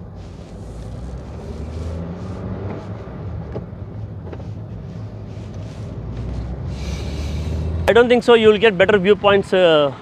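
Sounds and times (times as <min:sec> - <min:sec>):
car engine and tyre rumble: 0:00.0 - 0:10.0.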